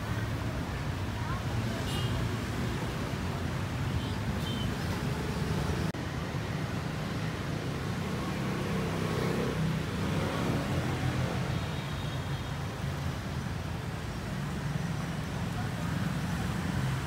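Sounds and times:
passing road traffic rumble: 0.0 - 17.0.

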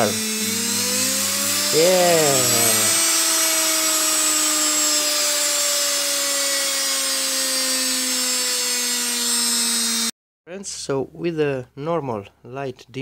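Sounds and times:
electric motor whine: 0.0 - 10.1.

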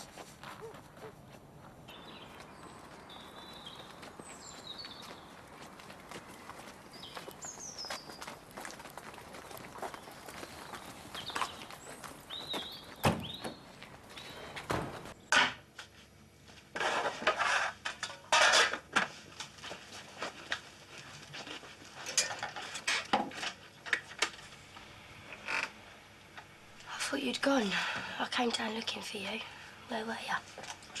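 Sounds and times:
footsteps on pavement: 0.0 - 15.1
crockery and cutlery clatter: 22.0 - 23.4.

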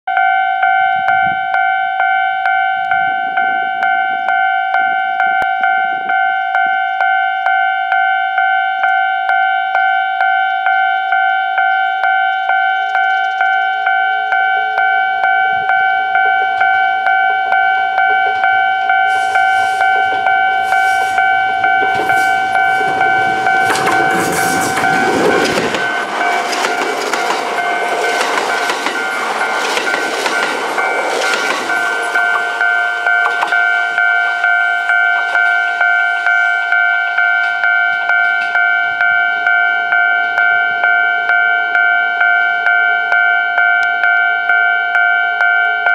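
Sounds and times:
level crossing bell ringing: 0.1 - 45.9
train wheels rumbling on rails: 15.6 - 38.6.

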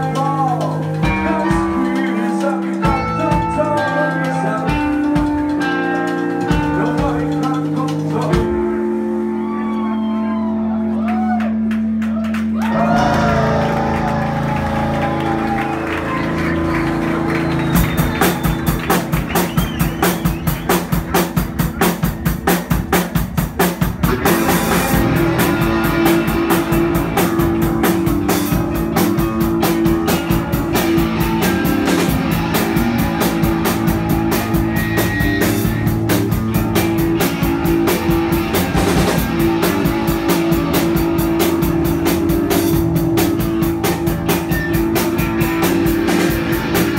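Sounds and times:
live rock band playing: 0.0 - 46.9
fast even drumbeat: 17.4 - 46.9.

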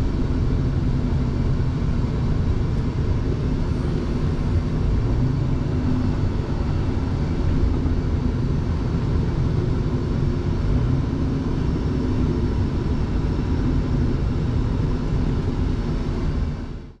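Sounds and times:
truck engine rumble inside cab: 0.0 - 17.0.

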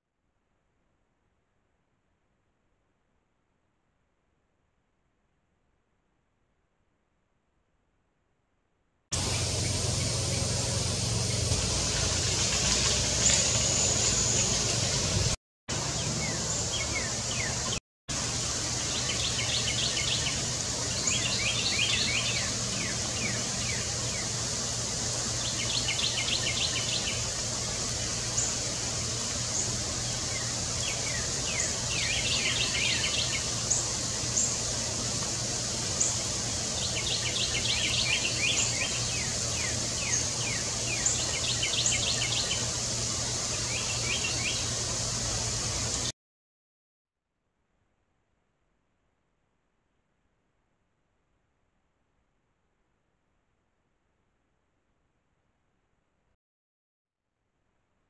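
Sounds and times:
steady low hum: 9.2 - 46.1.

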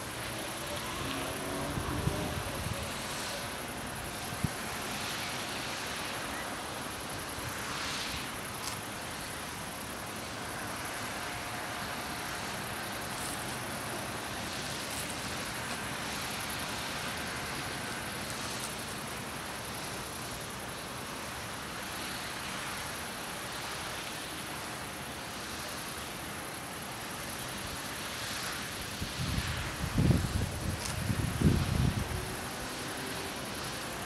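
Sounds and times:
even hiss: 0.0 - 34.0
wind buffeting microphone: 29.0 - 32.3.

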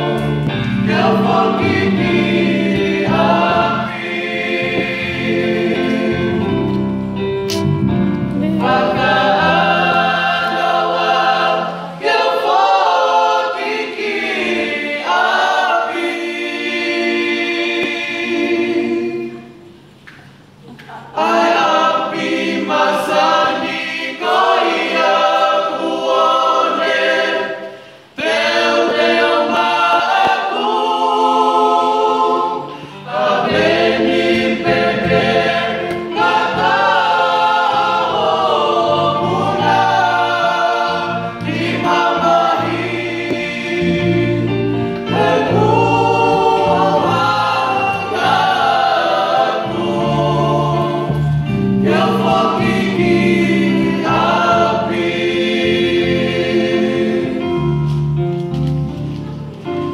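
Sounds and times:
youth choir singing: 0.0 - 7.7, 8.3 - 19.9, 20.6 - 58.2.

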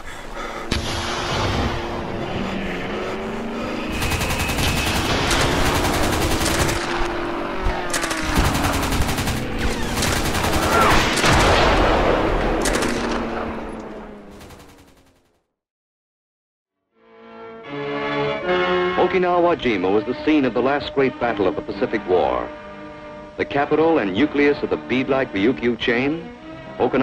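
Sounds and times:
dense gunfire din: 3.9 - 7.0, 7.9 - 13.5
machine-gun fire bursts: 3.9 - 7.1, 7.9 - 11.8, 14.3 - 15.2.

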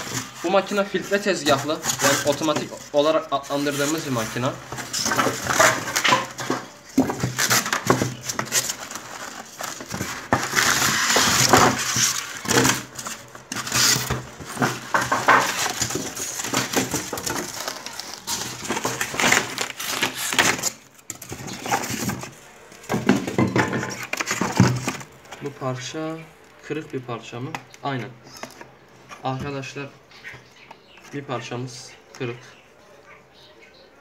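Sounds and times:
styrofoam scraping in cardboard box: 0.0 - 20.8.

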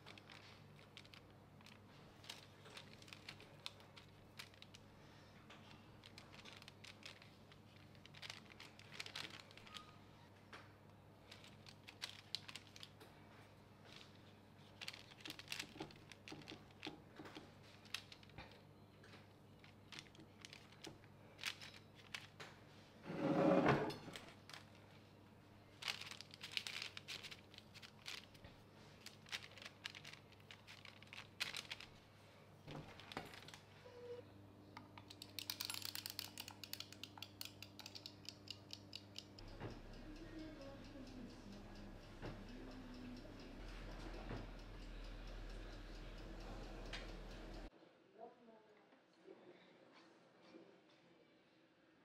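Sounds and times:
paper rustling: 0.0 - 10.0, 11.2 - 13.0, 25.8 - 32.1, 32.7 - 33.7
small clicks: 34.8 - 47.7
rapid ticks: 35.2 - 47.7
low steady hum: 37.2 - 49.7.

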